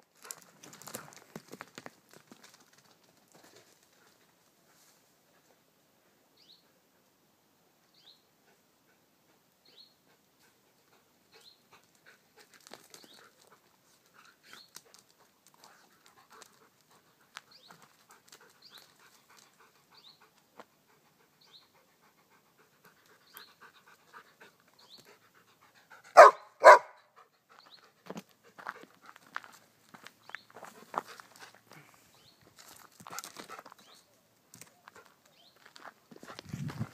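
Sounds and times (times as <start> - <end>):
small dog barking: 26.2 - 27.1
footsteps on stony dirt track: 27.6 - 34.0, 34.6 - 36.9.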